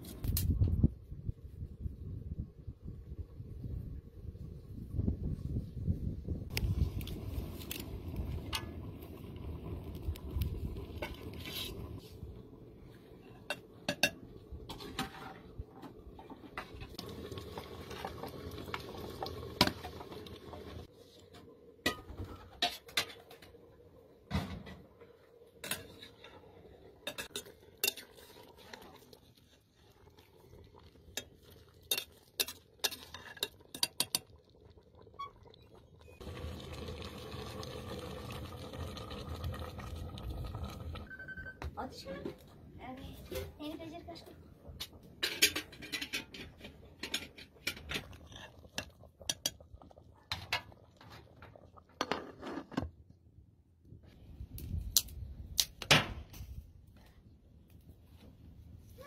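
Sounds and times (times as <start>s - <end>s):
metal pots and ladle clinking: 13.2s - 19.0s, 21.8s - 23.5s, 25.6s - 29.1s, 31.1s - 34.5s, 44.8s - 52.9s.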